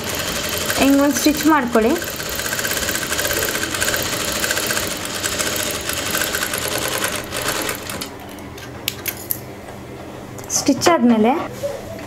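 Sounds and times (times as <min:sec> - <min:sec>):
sewing machine stitching: 0:00.0 - 0:08.1.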